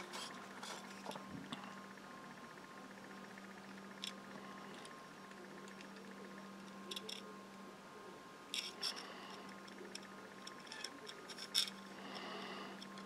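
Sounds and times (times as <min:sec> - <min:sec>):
faint steady hum: 0:00.0 - 0:13.0
plastic parts clicking and tapping: 0:05.6 - 0:07.3, 0:08.5 - 0:11.8.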